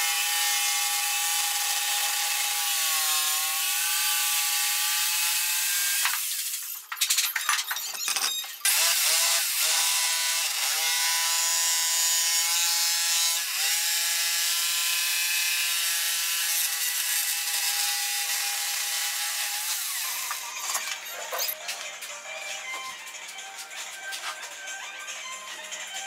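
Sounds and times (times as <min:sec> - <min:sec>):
electric jigsaw sawing wood: 0:00.0 - 0:06.6, 0:08.6 - 0:21.2.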